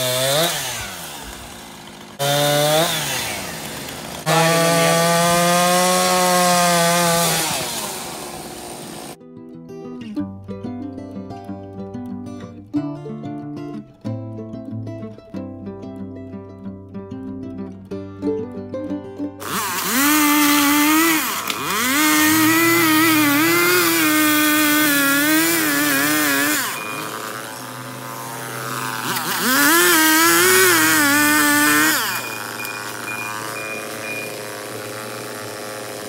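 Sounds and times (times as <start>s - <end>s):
chainsaw cutting a tree trunk: 0.0s - 9.2s, 19.4s - 36.0s.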